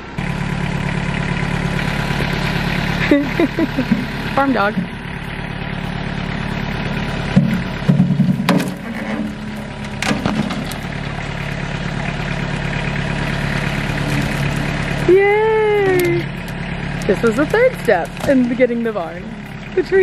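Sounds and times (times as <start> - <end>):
diesel tractor engine running: 0.0 - 20.0
wood knocking and cracking: 7.4 - 10.8.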